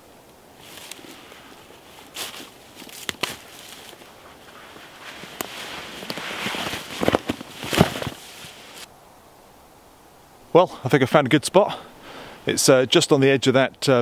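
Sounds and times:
rustling leaves: 0:00.0 - 0:13.7
twigs snapping: 0:00.3 - 0:01.2, 0:02.0 - 0:08.9
footsteps through leaf litter: 0:00.6 - 0:08.9.

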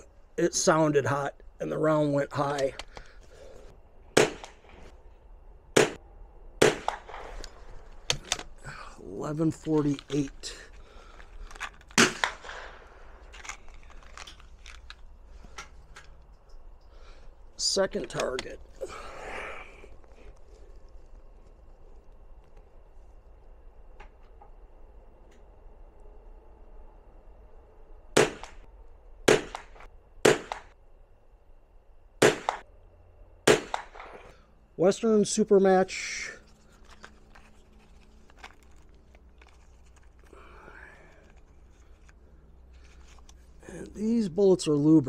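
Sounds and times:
rifle shots cracking: 0:04.1 - 0:04.8, 0:05.7 - 0:06.0, 0:06.6 - 0:07.4, 0:11.9 - 0:13.3, 0:28.2 - 0:28.6, 0:29.3 - 0:30.7, 0:32.2 - 0:32.7, 0:33.4 - 0:34.3
gunshot with echo: 0:04.2 - 0:04.6, 0:05.8 - 0:06.0, 0:06.6 - 0:07.3, 0:28.2 - 0:28.6, 0:29.3 - 0:30.7, 0:32.2 - 0:32.6, 0:33.5 - 0:34.3
plastic ammo box handled: 0:09.5 - 0:12.6, 0:13.2 - 0:16.2, 0:36.4 - 0:40.4, 0:41.1 - 0:43.4.

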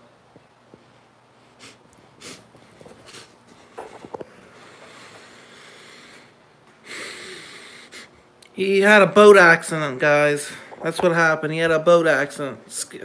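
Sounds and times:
breaths and sniffs: 0:01.4 - 0:08.2.

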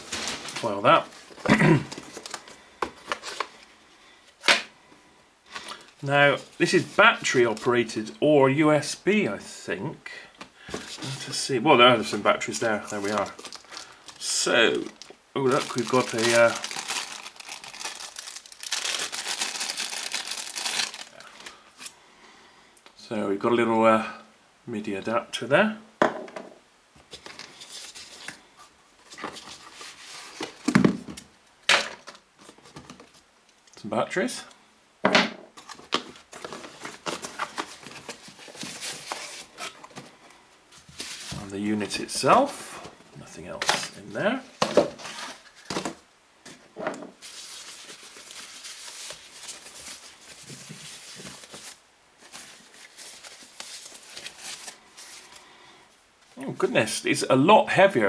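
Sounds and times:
rustling packaging in box: 0:00.0 - 0:03.7, 0:12.5 - 0:22.0, 0:27.1 - 0:28.4, 0:29.0 - 0:30.8, 0:35.6 - 0:40.2, 0:40.8 - 0:41.5, 0:44.6 - 0:46.6, 0:47.2 - 0:55.4.

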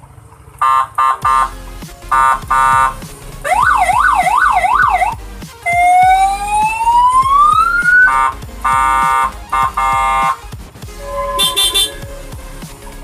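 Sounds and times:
scooter siren horn: 0:00.6 - 0:05.1, 0:05.7 - 0:10.4, 0:11.0 - 0:12.1.

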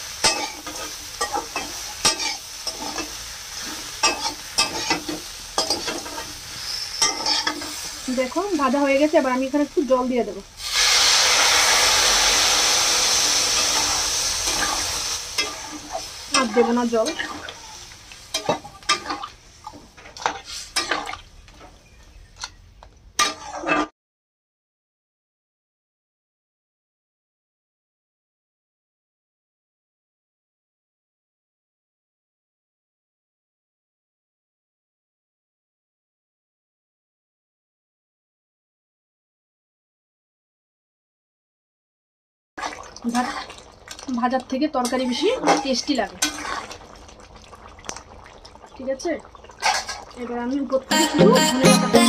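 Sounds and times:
oil sizzling: 0:00.0 - 0:21.9, 0:42.6 - 0:52.0
metal spatula scraping a pan: 0:00.1 - 0:08.1, 0:13.4 - 0:19.3, 0:20.0 - 0:21.2, 0:23.2 - 0:23.9, 0:44.8 - 0:46.8.

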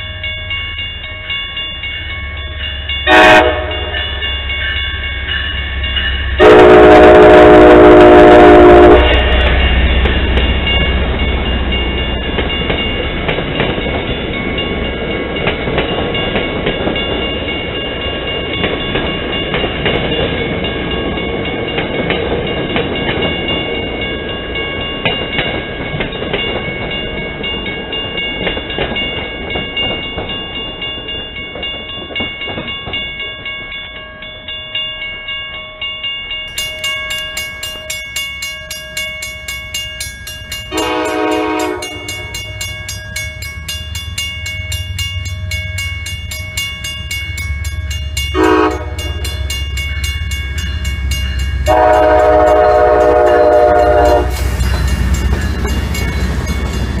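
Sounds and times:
crossing bell ringing: 0:00.0 - 0:57.0
train wheels rumbling and rattling: 0:01.6 - 0:33.7, 0:36.5 - 0:57.0
train horn blast: 0:03.1 - 0:04.0, 0:06.4 - 0:09.3, 0:40.7 - 0:42.3, 0:48.4 - 0:49.3, 0:51.7 - 0:54.4.

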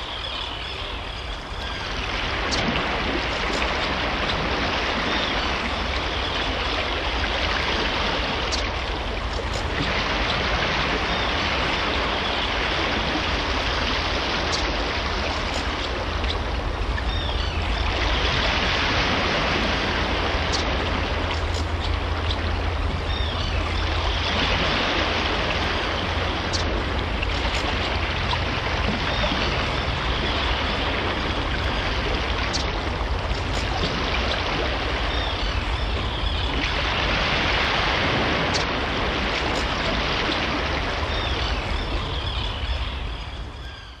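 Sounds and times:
low hum: 0:00.0 - 0:43.9
water rushing: 0:00.0 - 0:44.0.

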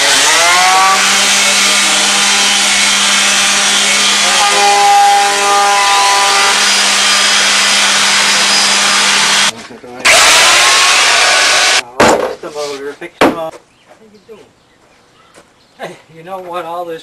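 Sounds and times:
drill motor whine: 0:00.0 - 0:09.5, 0:10.1 - 0:11.8
wire brush grinding on steel: 0:00.0 - 0:09.5.

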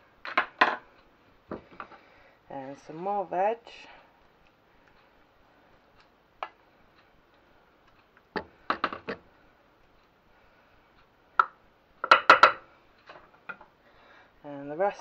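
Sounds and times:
wooden spoon tapping cookware: 0:11.4 - 0:12.6.

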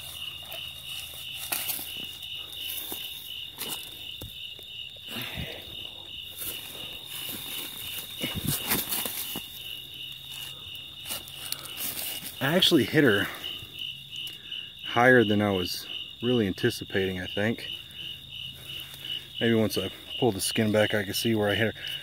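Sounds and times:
rustling through dry grass: 0:00.0 - 0:13.6, 0:17.8 - 0:21.0
crickets trilling: 0:00.0 - 0:22.0.

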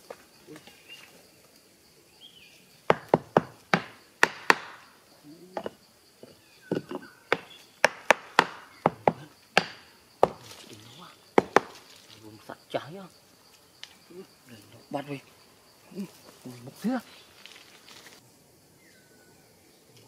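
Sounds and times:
machete chopping wood: 0:02.9 - 0:04.8, 0:07.3 - 0:10.6, 0:11.4 - 0:11.9.

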